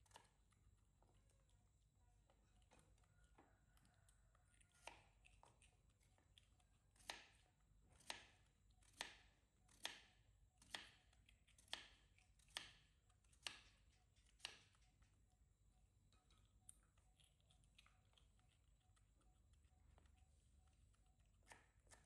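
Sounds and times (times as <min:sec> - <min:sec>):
knife slicing potato on board: 0:04.7 - 0:05.2, 0:08.0 - 0:12.8.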